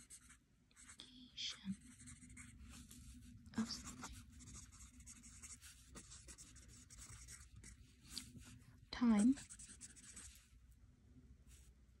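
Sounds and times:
pen scratching on paper: 0.0s - 1.0s, 1.7s - 8.5s, 9.2s - 10.4s.

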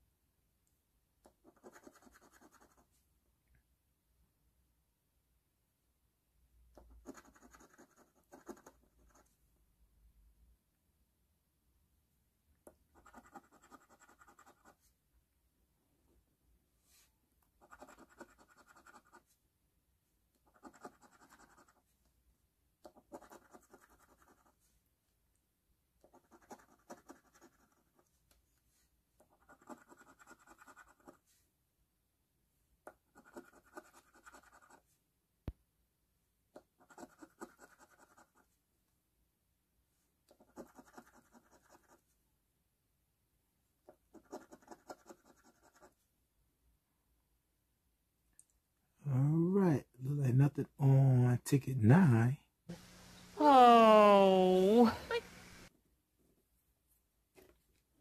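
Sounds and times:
coin scratching a ticket: 1.5s - 2.8s, 7.0s - 9.2s, 13.0s - 14.7s, 17.6s - 19.2s, 20.5s - 21.8s, 23.0s - 24.5s, 26.1s - 27.9s, 29.3s - 31.2s, 33.2s - 34.8s, 40.4s - 42.0s.

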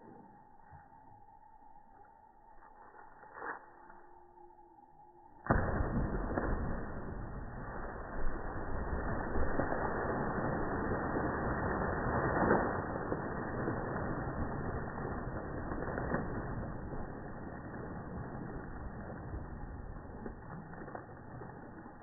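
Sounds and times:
dog splashing into pool: 5.5s - 22.0s
water rushing and churning: 5.5s - 22.0s.

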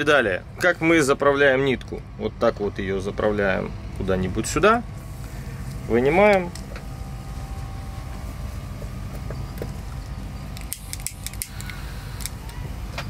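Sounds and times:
steady low hum: 0.0s - 13.0s
lighter clicking: 10.6s - 12.6s.

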